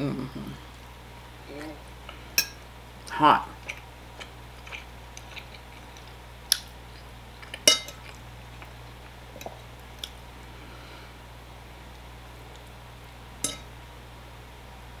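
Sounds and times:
steady low hum: 0.0 - 15.0
metal fork clinking on a plate: 7.7 - 8.0, 13.4 - 13.7.

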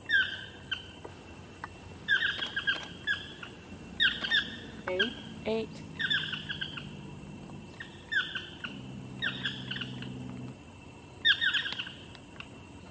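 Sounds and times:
toucans yelping: 2.1 - 10.6, 11.2 - 12.0.

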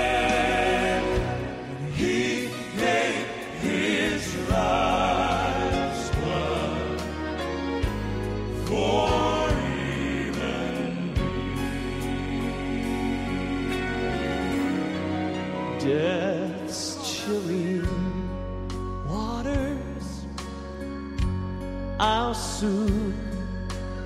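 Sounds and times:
male quartet singing in harmony: 0.0 - 18.4
grand piano accompaniment: 0.0 - 24.0.

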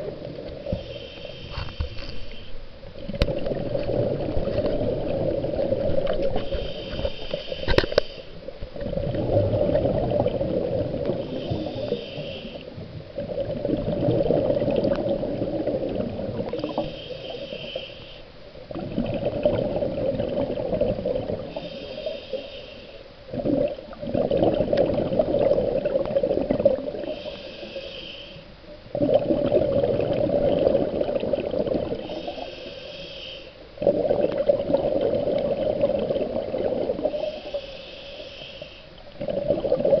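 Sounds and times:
regulator hissing inhale: 0.6 - 2.6, 6.3 - 8.4, 11.1 - 12.8, 16.5 - 18.4, 21.5 - 23.2, 27.0 - 28.6, 31.9 - 33.7, 37.1 - 39.0
exhaled bubbles rushing: 3.0 - 6.4, 8.8 - 11.4, 13.2 - 16.9, 18.7 - 21.6, 23.3 - 27.2, 28.9 - 32.0, 33.8 - 37.6, 39.1 - 40.0.

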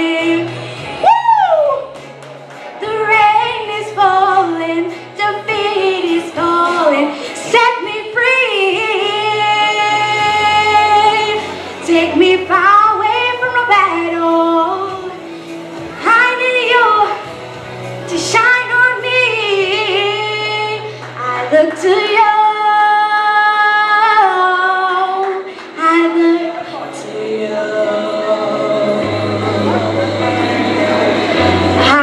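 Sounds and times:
girl singing a ballad: 0.0 - 2.0, 2.7 - 32.0
instrumental accompaniment: 24.6 - 32.0.

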